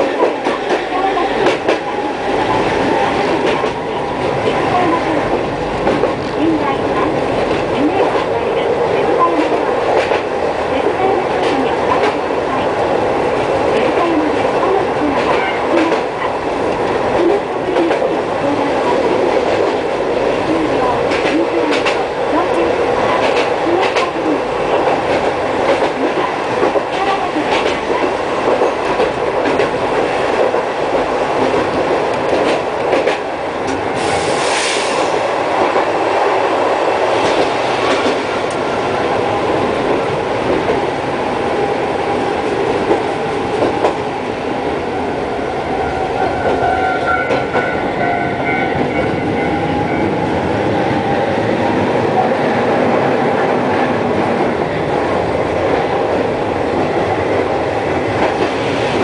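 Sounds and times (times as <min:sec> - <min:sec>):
tram wheels rumbling on track: 0:00.0 - 0:59.0.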